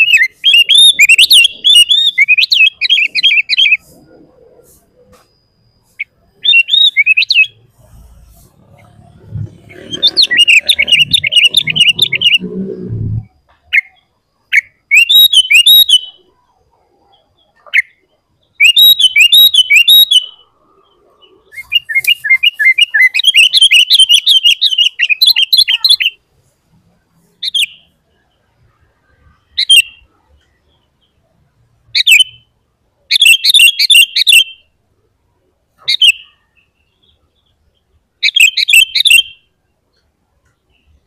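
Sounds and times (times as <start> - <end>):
bulbul singing: 0.0 - 26.3, 27.2 - 31.3, 35.8 - 41.0
low background noise: 0.0 - 41.0.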